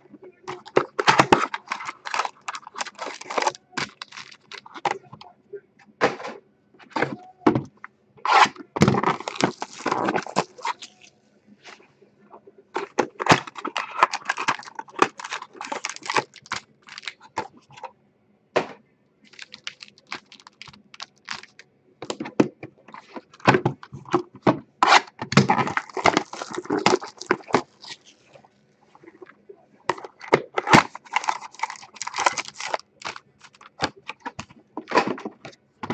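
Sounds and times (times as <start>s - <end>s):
plastic wrap crinkling: 0.5s - 5.1s, 8.3s - 11.1s, 12.8s - 17.8s, 19.3s - 22.2s, 25.4s - 28.4s, 29.9s - 35.0s.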